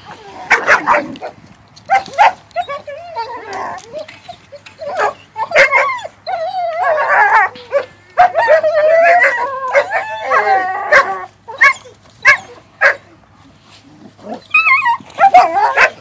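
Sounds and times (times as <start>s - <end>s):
puppies whining and yipping: 0.0s - 13.0s, 14.0s - 16.0s
puppy yelps: 1.9s - 13.0s, 14.3s - 16.0s.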